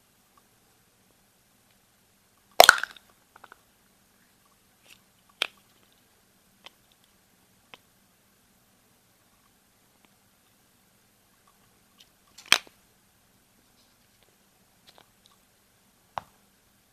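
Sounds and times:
chocolate halves clicking: 2.6s - 3.6s, 12.3s - 12.8s
chocolate shell cracking snap: 2.6s - 3.6s.

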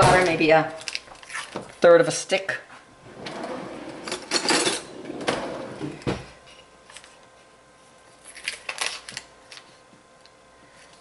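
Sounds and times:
cutlery rattling in drawer: 4.0s - 5.4s.

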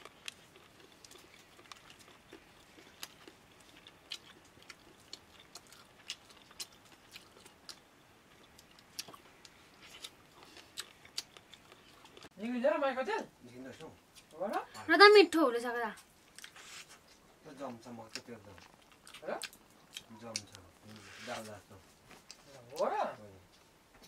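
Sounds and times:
man chewing crunchy food: 0.0s - 12.4s, 16.0s - 17.2s, 18.0s - 21.0s.

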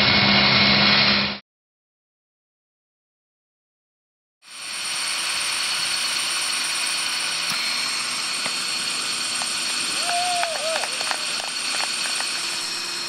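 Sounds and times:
machine motors whining: 4.5s - 13.0s.

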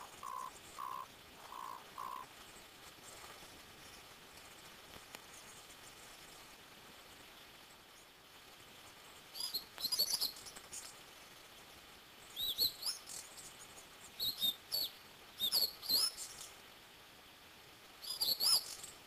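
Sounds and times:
high-pitched bird calls: 0.0s - 2.3s, 14.2s - 16.4s, 18.0s - 18.8s
faint hiss: 0.0s - 19.0s.

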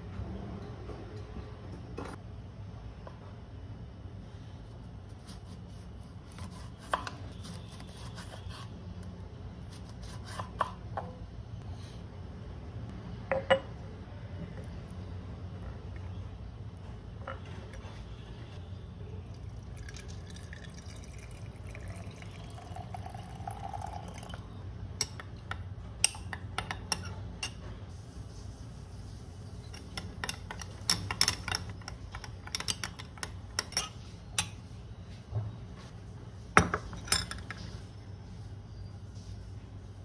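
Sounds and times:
tap water filling glass jar: 19.3s - 24.4s.

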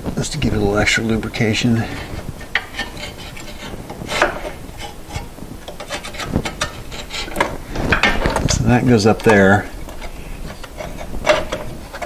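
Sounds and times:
parts rubbing: 0.0s - 12.0s
metal parts clicking and knocking: 5.7s - 12.0s.

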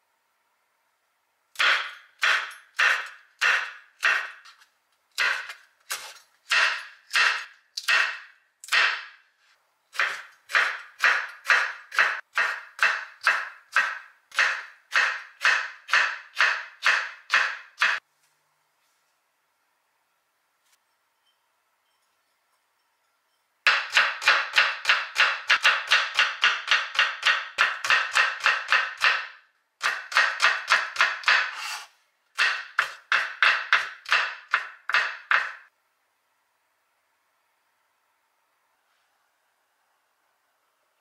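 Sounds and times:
knife chopping on wooden board: 1.6s - 4.6s, 5.2s - 9.2s, 9.9s - 18.0s, 23.7s - 35.6s.

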